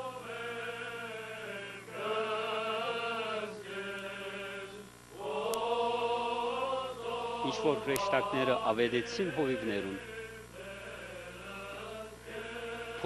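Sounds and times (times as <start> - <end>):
man chanting: 7.4 - 10.1.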